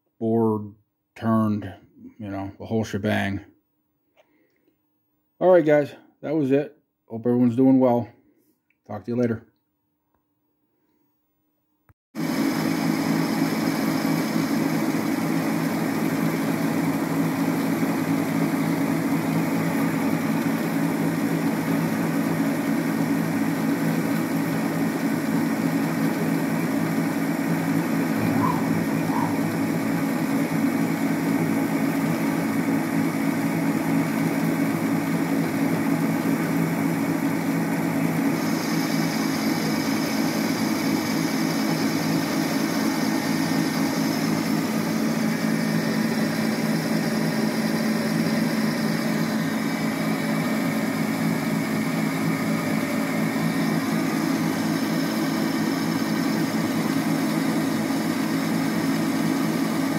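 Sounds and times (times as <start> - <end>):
lathe motor hum: 12.2 - 59.9
faint high whine: 28.1 - 30.5.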